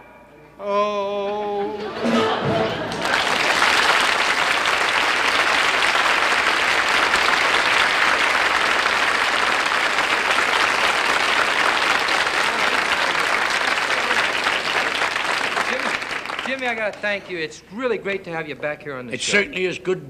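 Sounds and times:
studio audience applauding: 2.8 - 17.5.

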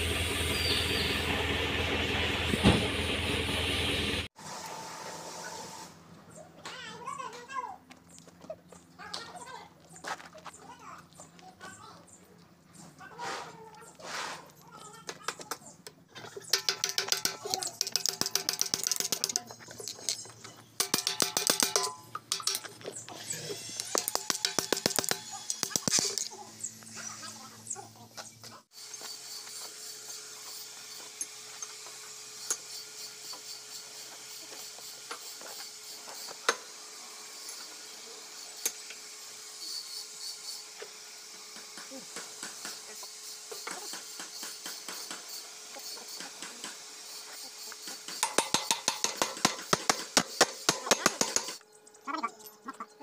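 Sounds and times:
metal clinks and knocks: 16.2 - 23.0.

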